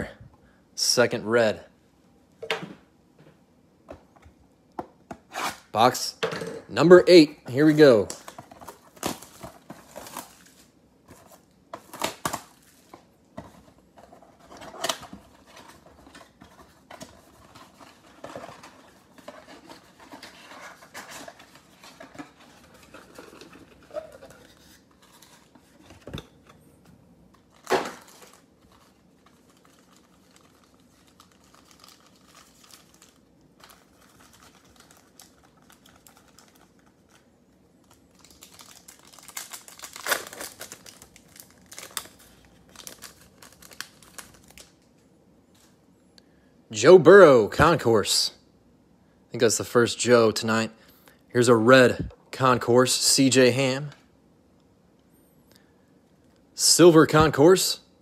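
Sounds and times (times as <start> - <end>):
foil packs crinkling: 27.4 - 44.8
foil pack tearing open: 38.1 - 44.6.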